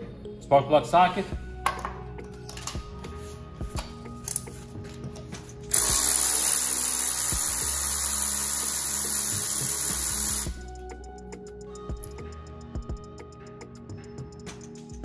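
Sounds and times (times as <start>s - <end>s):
electric ratchet whirring: 5.7s - 10.6s.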